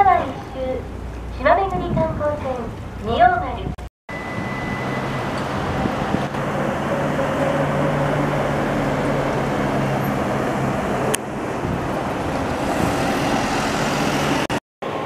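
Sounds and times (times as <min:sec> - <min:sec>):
vehicle travel noise: 0:00.0 - 0:15.0.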